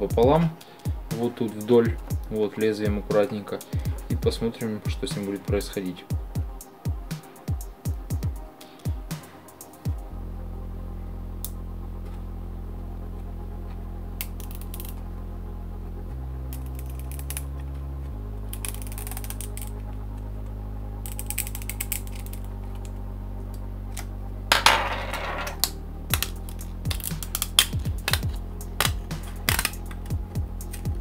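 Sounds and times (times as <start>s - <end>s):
background music with bass: 0.0s - 31.0s.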